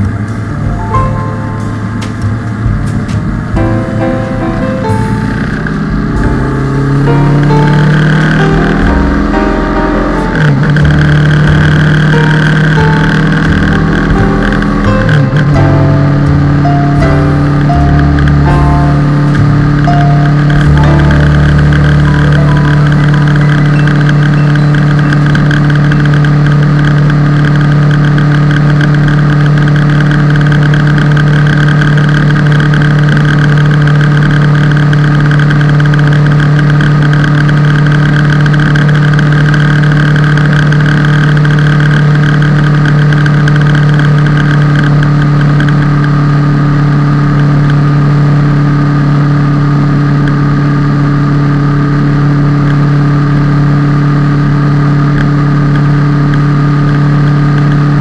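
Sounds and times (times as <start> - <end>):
motorcycle engine droning: 0.0 - 58.0.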